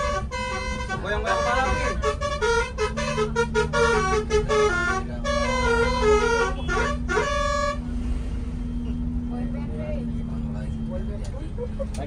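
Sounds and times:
bus air horn playing a tune: 0:00.0 - 0:07.9.

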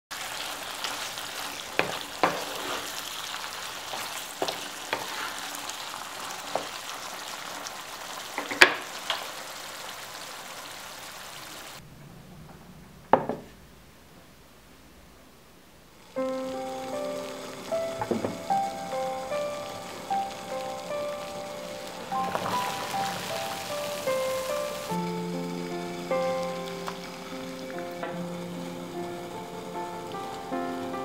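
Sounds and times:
food sizzling in a frying pan: 0:00.1 - 0:11.8, 0:16.0 - 0:31.0
wooden spoon knocking on a pan: 0:18.0 - 0:18.5.

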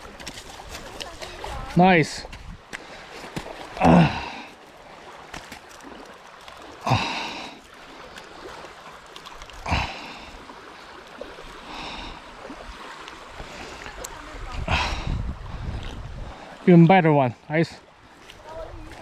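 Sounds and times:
rain: 0:00.0 - 0:15.1
wind: 0:00.0 - 0:19.0
man exhaling: 0:03.8 - 0:04.5, 0:06.8 - 0:07.6, 0:09.6 - 0:10.3.

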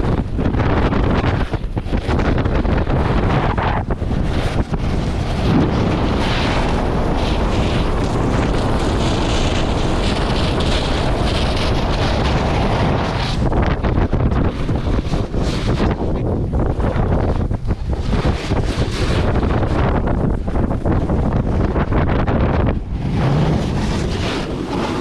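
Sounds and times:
wind rushing over microphone: 0:00.0 - 0:25.0
ski edges scraping snow: 0:02.1 - 0:16.3, 0:20.8 - 0:25.0.

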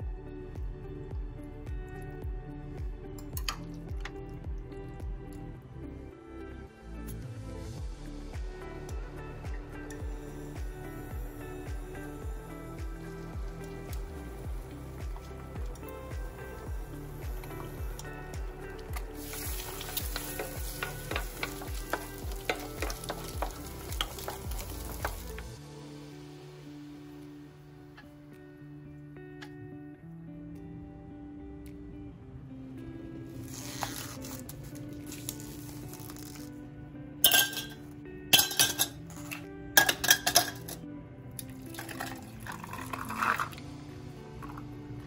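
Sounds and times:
soft background music: 0:00.0 - 0:45.0
eggs sizzling in pan: 0:10.2 - 0:25.6
ice cubes clinking in glass: 0:37.2 - 0:37.8, 0:38.4 - 0:40.8, 0:41.7 - 0:43.6.

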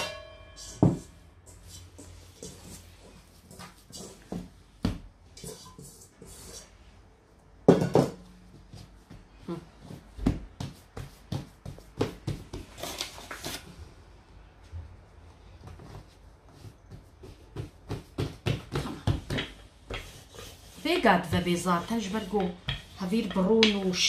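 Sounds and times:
metal bowl set down ringing: 0:00.0 - 0:01.1
hands patting dough: 0:08.5 - 0:12.8, 0:15.5 - 0:24.0.

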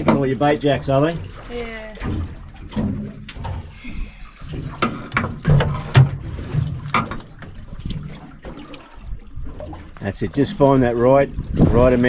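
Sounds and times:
knocks and splashes: 0:00.0 - 0:12.0
water slapping against boat hull: 0:00.0 - 0:12.0.

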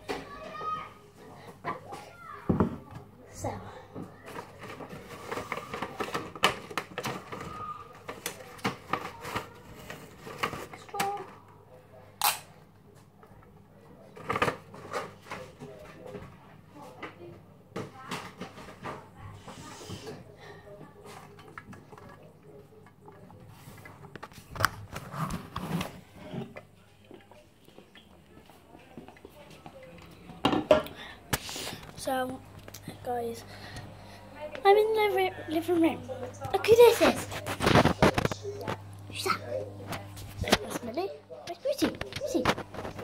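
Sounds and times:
hands rummaging among hard objects: 0:04.2 - 0:11.2.

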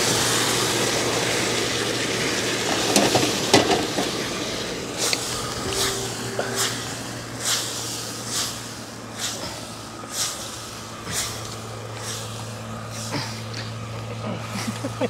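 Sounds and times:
food sizzling in wok: 0:00.1 - 0:13.1
steady low hum: 0:04.3 - 0:15.0.

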